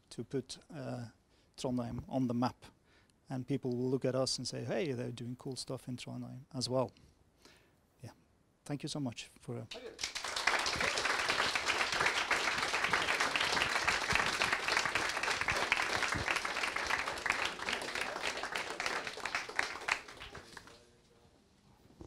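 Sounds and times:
audience applauding: 0:09.7 - 0:20.9.

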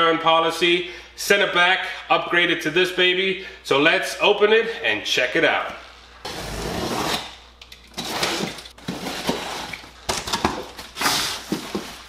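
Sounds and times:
packing tape tearing: 0:06.3 - 0:12.0.

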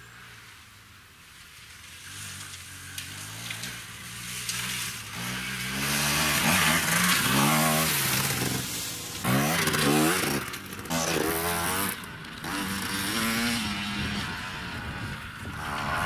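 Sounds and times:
dirt bike engine revving: 0:02.0 - 0:16.0.

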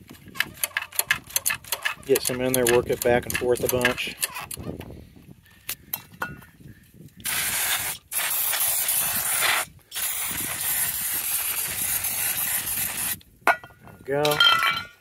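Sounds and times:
aerosol spray hissing: 0:07.3 - 0:13.2.

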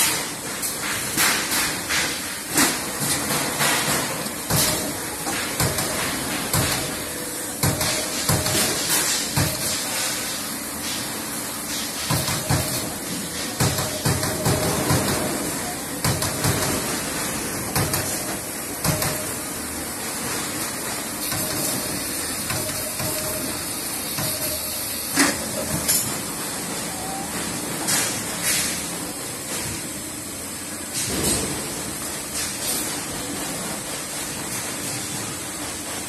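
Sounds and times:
machine hiss: 0:00.0 - 0:26.9.

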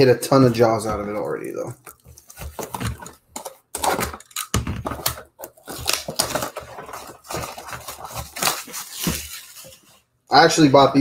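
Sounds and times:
plastic wrap crinkling: 0:00.5 - 0:10.1
knife slitting plastic wrap: 0:03.8 - 0:09.8.

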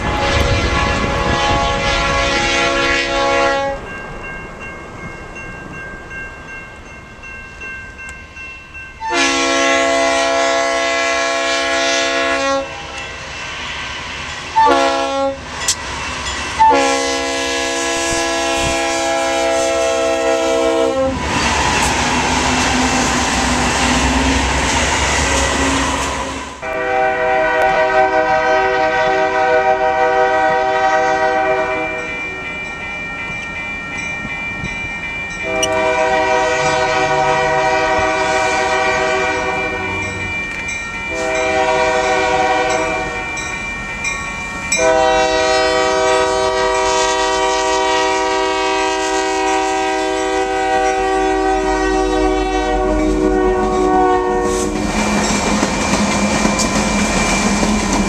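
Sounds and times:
locomotive air horn blasts: 0:00.0 - 0:03.9, 0:09.0 - 0:13.0, 0:14.6 - 0:15.4, 0:16.6 - 0:21.2, 0:25.2 - 0:32.2, 0:35.4 - 0:40.1, 0:41.1 - 0:43.2, 0:44.8 - 0:54.9
locomotive engine and wheels: 0:00.0 - 0:09.3, 0:11.0 - 0:18.7, 0:19.3 - 0:58.0.

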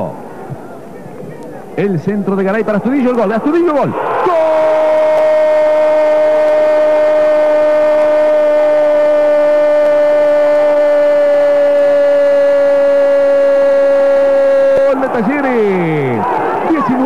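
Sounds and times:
commentator shouting goal: 0:14.4 - 0:17.0.

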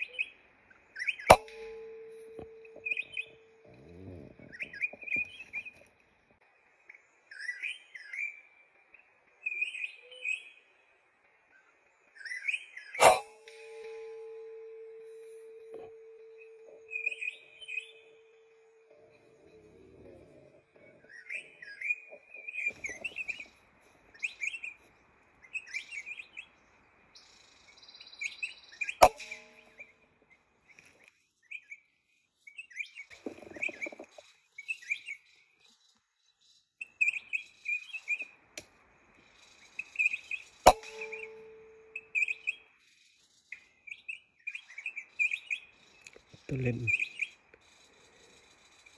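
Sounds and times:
birds chirping: 0:00.0 - 0:48.9
air rifle shot: 0:01.3 - 0:02.2, 0:40.7 - 0:41.5
brief ringing tone: 0:01.3 - 0:04.1, 0:13.0 - 0:19.1.

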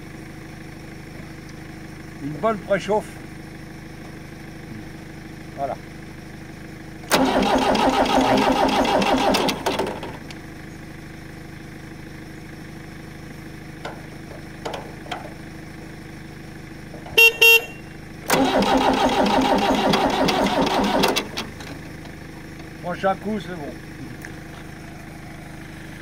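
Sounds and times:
diesel engine cranking over: 0:02.0 - 0:26.0
tractor horn toots: 0:17.1 - 0:18.8.

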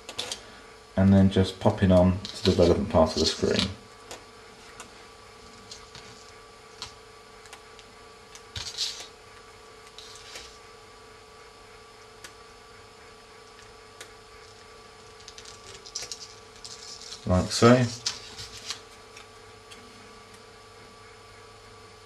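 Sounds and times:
steady faint hum: 0:00.0 - 0:22.0
tape rustling: 0:02.0 - 0:03.7, 0:15.0 - 0:19.0.

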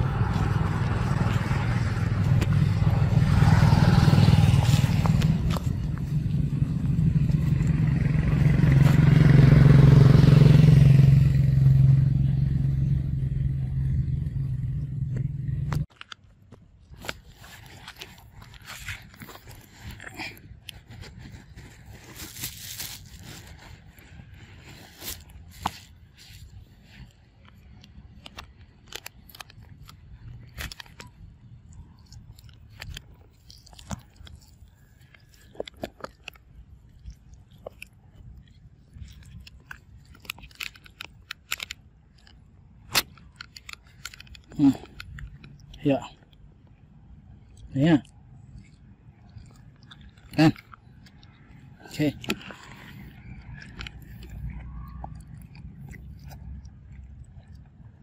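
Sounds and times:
vehicle engine humming: 0:00.0 - 0:58.0
monkey chewing food: 0:15.8 - 0:58.0.

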